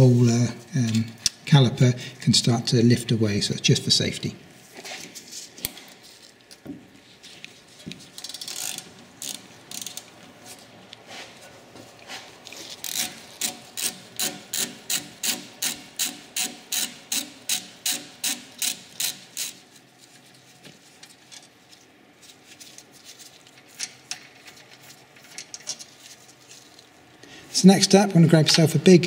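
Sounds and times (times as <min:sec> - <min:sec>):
ratchet wrench strokes: 0:08.2 - 0:10.0, 0:12.8 - 0:19.6.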